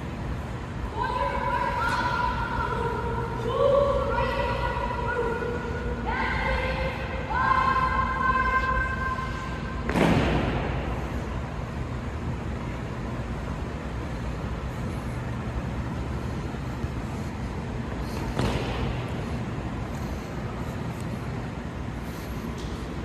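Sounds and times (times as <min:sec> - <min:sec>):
low background rumble: 0:00.0 - 0:23.0
loud sharp bang echoing: 0:09.8 - 0:10.9.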